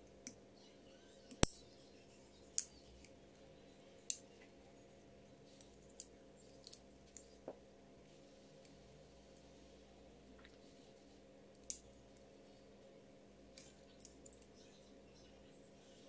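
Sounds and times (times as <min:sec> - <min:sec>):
multitool metallic clicks and snaps: 0:01.3 - 0:01.6.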